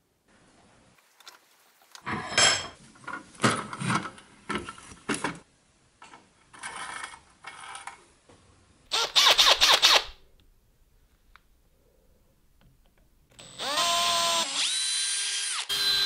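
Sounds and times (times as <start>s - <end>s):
cordless drill motor bursts: 8.9s - 10.2s, 13.4s - 16.0s.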